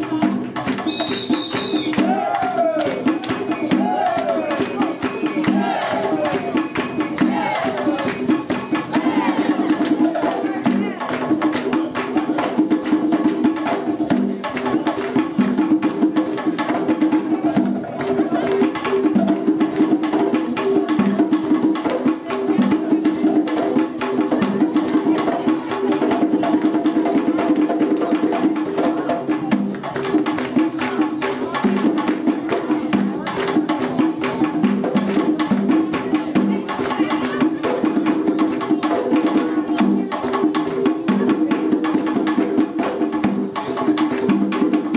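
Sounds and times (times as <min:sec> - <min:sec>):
group drumming fast rhythm: 0:00.0 - 0:44.9.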